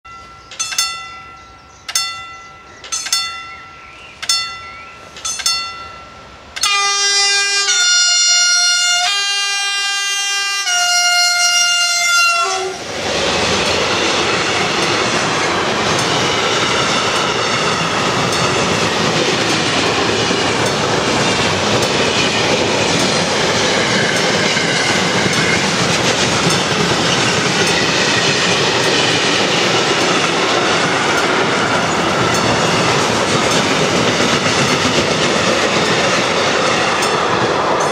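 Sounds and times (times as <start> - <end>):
wheels clicking over rail joints: 0.1 - 7.0, 12.0 - 37.9
freight train rolling past: 0.1 - 37.9
two-pitch locomotive horn: 6.6 - 12.9.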